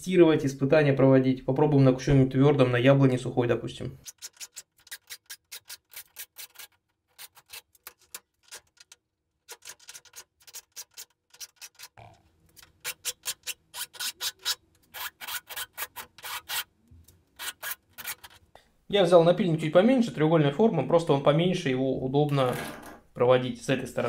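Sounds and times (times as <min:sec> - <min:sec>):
file rasping on chainsaw chain: 0:12.9 - 0:16.7.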